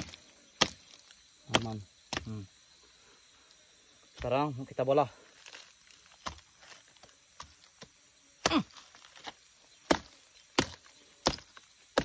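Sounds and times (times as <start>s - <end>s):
machete chopping fruit husk: 0.0s - 2.5s, 5.4s - 12.0s.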